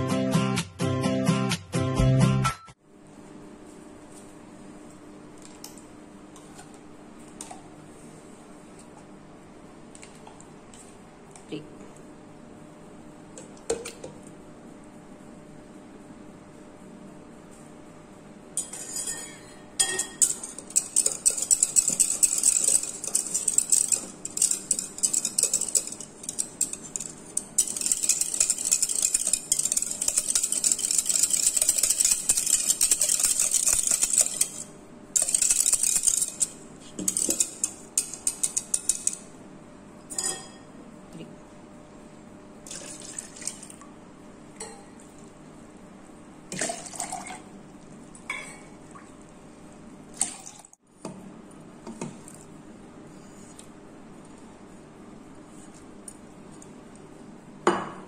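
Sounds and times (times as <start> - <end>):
utensil whisking in plastic jug: 20.2 - 39.2.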